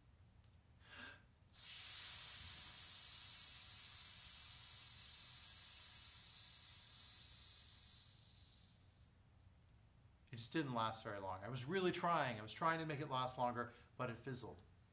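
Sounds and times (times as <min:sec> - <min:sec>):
man hissing: 0:00.9 - 0:09.1.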